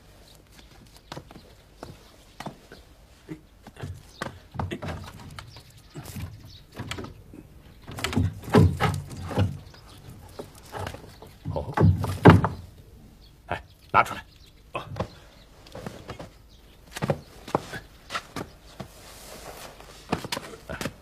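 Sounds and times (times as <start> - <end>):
knocks and thumps on wooden panel: 7.9 - 9.7, 10.3 - 12.7.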